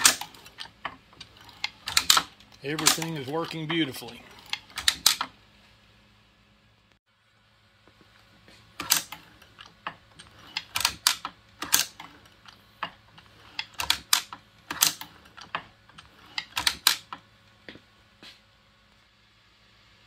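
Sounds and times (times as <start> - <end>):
reloading press clicks and clacks: 0.0 - 5.4, 8.7 - 17.3.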